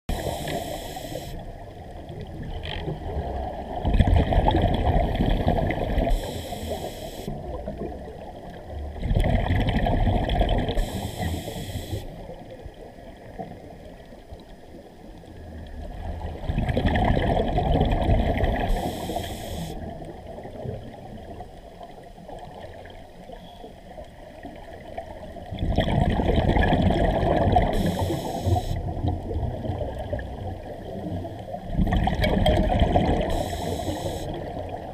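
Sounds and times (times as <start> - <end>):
bubbles gurgling underwater: 1.4 - 6.3, 7.3 - 11.4, 15.4 - 19.2, 24.0 - 34.9.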